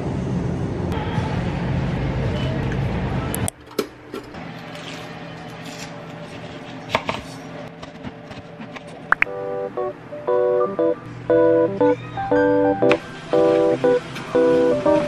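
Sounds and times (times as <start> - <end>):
busy store noise: 0.9 - 15.0
faint steady hum: 9.2 - 15.0.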